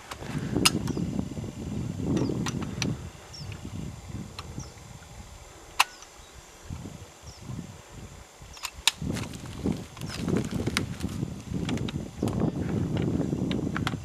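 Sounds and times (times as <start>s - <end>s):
handling rustle: 8.6s - 12.4s.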